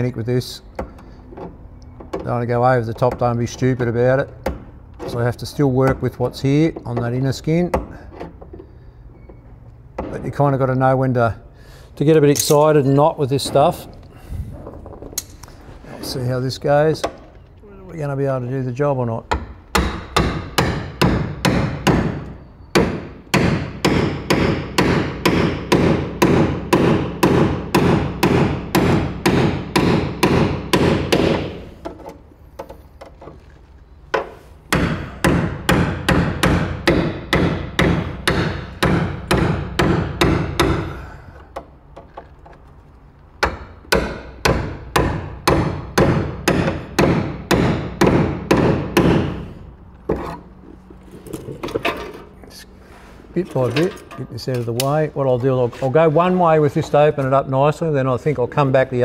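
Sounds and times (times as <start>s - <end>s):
hammer striking metal chisel: 19.3s - 32.0s, 34.1s - 41.0s, 43.4s - 49.4s.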